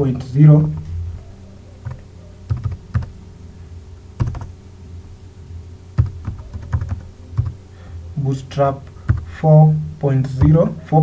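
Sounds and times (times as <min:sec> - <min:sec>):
keyboard keystrokes: 0:01.8 - 0:03.1, 0:04.2 - 0:04.5, 0:06.0 - 0:07.6, 0:09.0 - 0:09.3.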